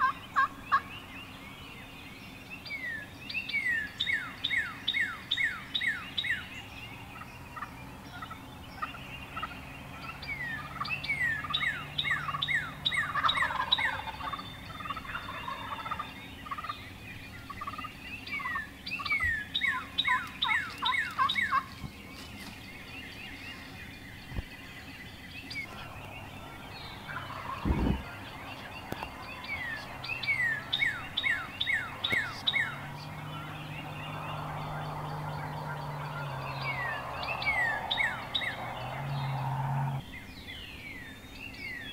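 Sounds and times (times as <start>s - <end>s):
turkey gobbling: 0.0s - 0.8s, 10.6s - 16.8s, 17.5s - 18.7s, 19.6s - 21.7s, 25.6s - 40.0s
songbirds whistling: 0.0s - 41.9s.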